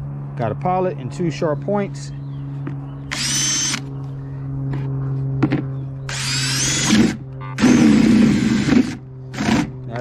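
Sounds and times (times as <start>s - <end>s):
drill boring into plastic: 6.1s - 9.7s.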